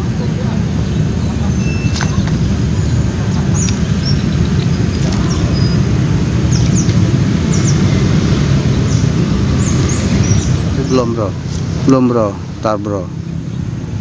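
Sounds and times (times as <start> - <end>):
low outdoor rumble: 0.0 - 14.0
small birds chirping: 0.3 - 13.8.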